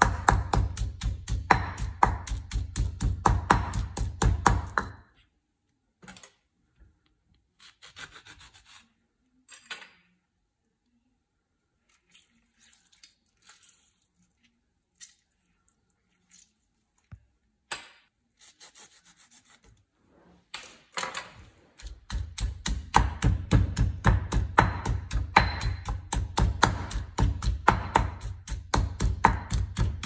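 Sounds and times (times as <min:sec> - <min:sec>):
hands rubbing and scraping: 0:18.4 - 0:20.5.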